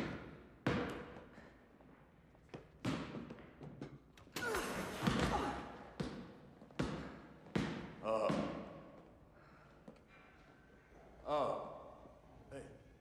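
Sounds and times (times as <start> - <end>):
basketball bouncing on floor: 0.0 - 4.3, 5.0 - 9.1.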